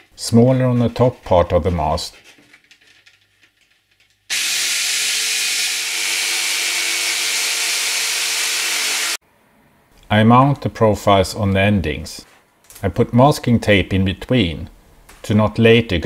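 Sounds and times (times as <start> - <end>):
electric jigsaw sawing board: 4.3 - 9.2.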